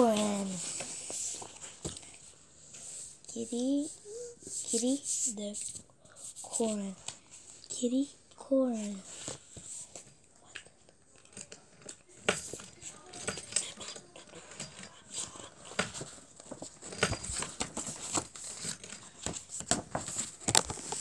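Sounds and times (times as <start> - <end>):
paper rustling: 0.0 - 3.2, 14.4 - 21.0
book pages flipping: 0.0 - 3.5, 8.3 - 13.4, 14.2 - 21.0.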